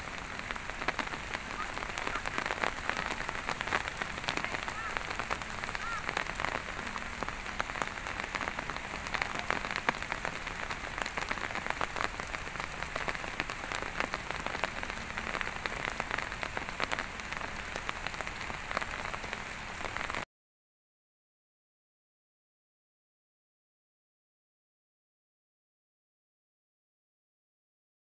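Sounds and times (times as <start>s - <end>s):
light rain falling: 0.0s - 20.3s.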